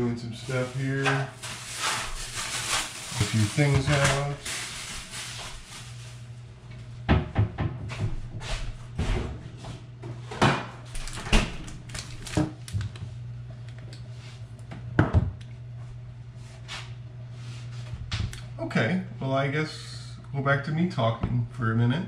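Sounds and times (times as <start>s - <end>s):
steady low hum: 0.0s - 22.0s
refrigerator door opening and shutting: 10.3s - 12.6s.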